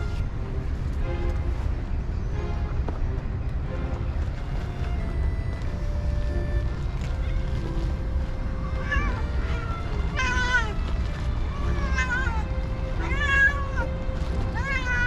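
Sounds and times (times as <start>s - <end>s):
cats meowing: 8.7s - 15.0s.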